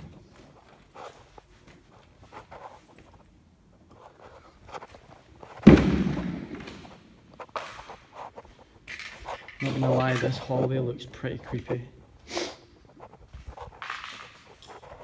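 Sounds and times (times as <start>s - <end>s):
loud echoing bang: 5.6s - 7.0s.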